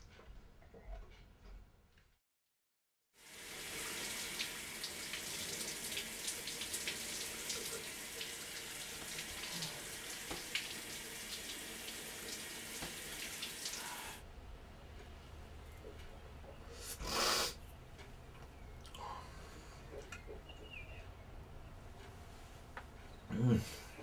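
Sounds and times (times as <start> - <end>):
shower water spraying: 3.2 - 14.2.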